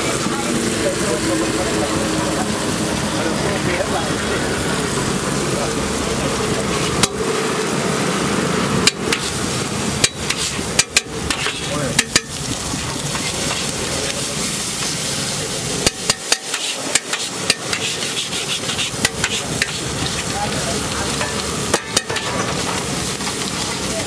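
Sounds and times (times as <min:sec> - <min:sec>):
frying sizzle: 0:00.0 - 0:24.0
metal spatula scraping on griddle: 0:08.8 - 0:23.8.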